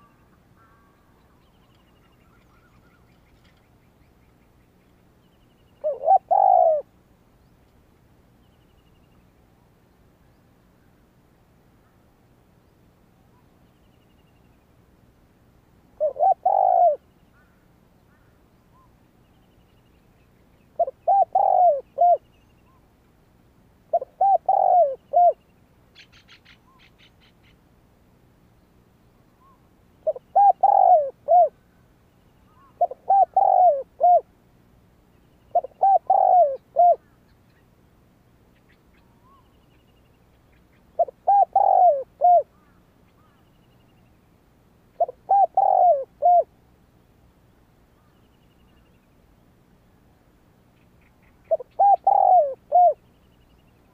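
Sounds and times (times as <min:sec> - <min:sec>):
dove cooing: 0:05.8 - 0:06.9, 0:16.0 - 0:17.6, 0:20.8 - 0:22.2, 0:23.9 - 0:25.4, 0:29.4 - 0:31.6, 0:32.5 - 0:34.3, 0:35.5 - 0:37.2, 0:41.0 - 0:43.4, 0:45.0 - 0:46.5, 0:51.4 - 0:53.1.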